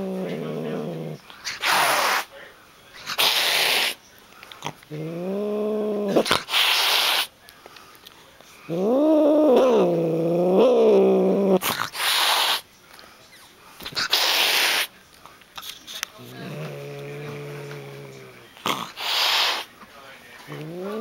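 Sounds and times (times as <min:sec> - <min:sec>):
cat hissing: 0:00.0 - 0:02.3, 0:03.0 - 0:04.0, 0:04.6 - 0:07.3, 0:11.0 - 0:12.7, 0:13.8 - 0:14.9, 0:15.6 - 0:19.7.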